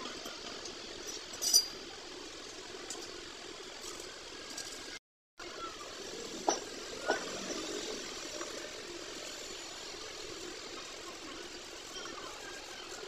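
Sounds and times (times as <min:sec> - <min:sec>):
workshop background noise: 0:00.0 - 0:13.0
sharp metal clinks: 0:01.1 - 0:01.8.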